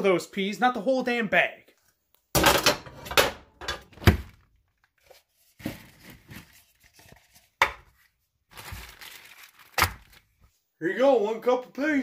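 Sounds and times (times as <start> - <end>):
plastic bag rustling: 5.2 - 7.4, 8.5 - 10.5.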